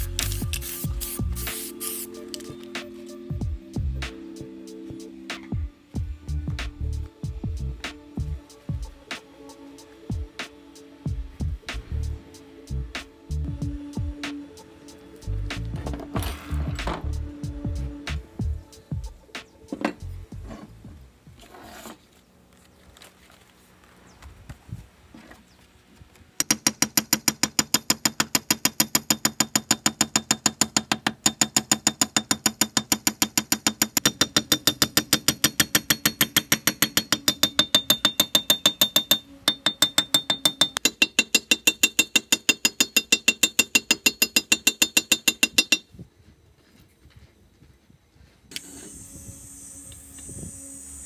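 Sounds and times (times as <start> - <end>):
ratchet wrench clicking: 26.4 - 45.8.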